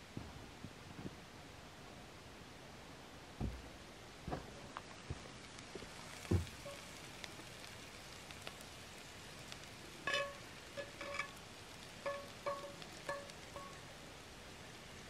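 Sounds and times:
light crackles: 3.3 - 15.0
food sizzling in pan: 4.7 - 15.0.

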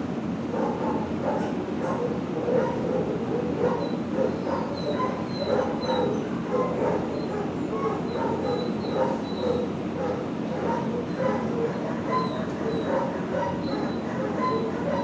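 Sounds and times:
dogs barking: 0.4 - 15.0.

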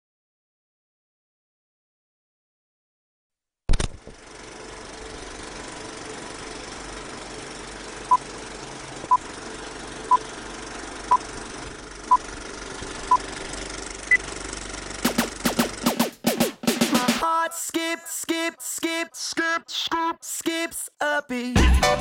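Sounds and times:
film projector whirring and clattering: 3.7 - 16.1
drums: 15.0 - 17.3, 21.6 - 22.0.

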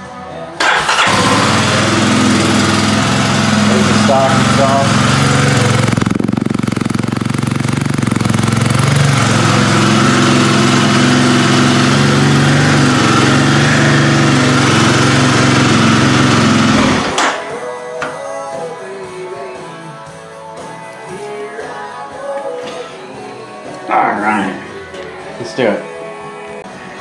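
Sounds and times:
motorcycle engine running: 0.6 - 17.4.

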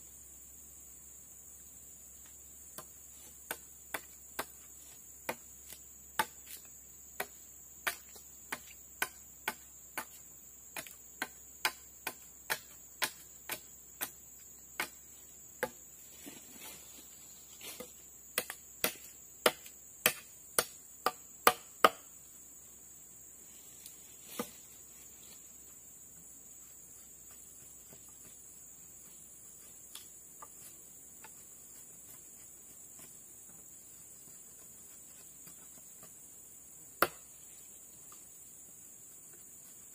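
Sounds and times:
machete chopping bamboo: 2.7 - 15.0, 15.6 - 15.8, 17.7 - 22.1, 37.0 - 37.4.

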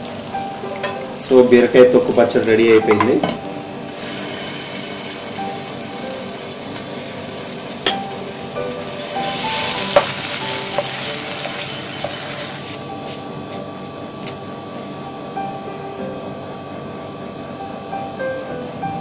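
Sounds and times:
paste sizzling in hot pan: 3.9 - 12.8.

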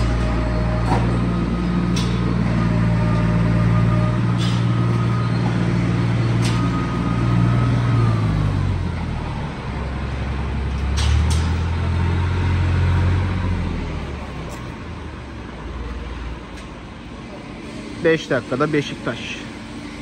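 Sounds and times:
tractor diesel engine running: 0.0 - 20.0.

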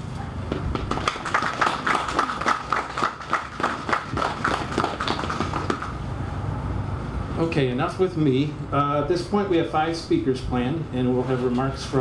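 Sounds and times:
audience applauding: 0.8 - 5.9.

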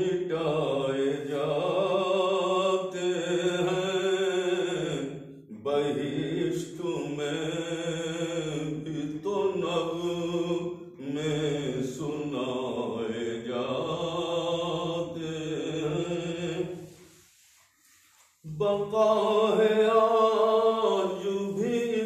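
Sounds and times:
man chanting: 0.0 - 16.8, 18.4 - 22.0.

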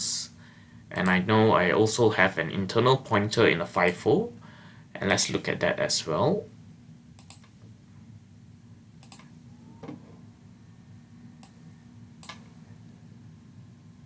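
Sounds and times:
steady low hum: 0.0 - 14.0
mouse and keyboard clicks: 9.0 - 9.3, 12.2 - 12.5.

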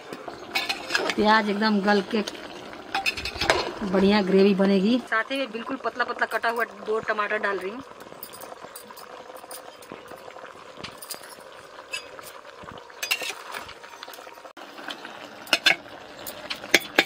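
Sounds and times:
meat sizzling in a pot: 0.0 - 17.0
metal spatula scraping and clinking: 0.4 - 1.2, 2.2 - 3.7, 10.8 - 12.4, 13.0 - 14.2.

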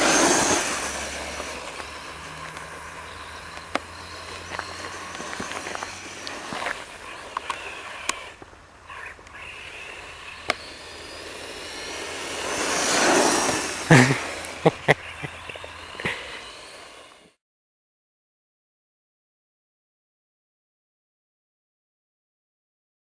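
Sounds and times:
toy truck motor whine: 0.0 - 17.4.

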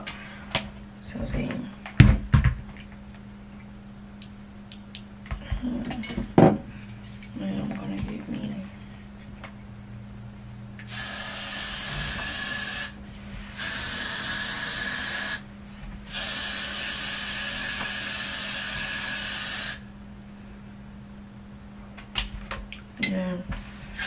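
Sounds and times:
aerosol hairspray hissing: 10.9 - 13.0, 16.1 - 19.8.

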